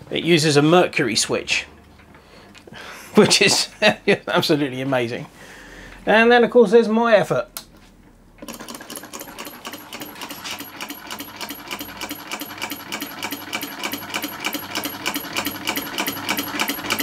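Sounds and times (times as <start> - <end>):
model engines clicking rapidly: 8.5 - 17.0.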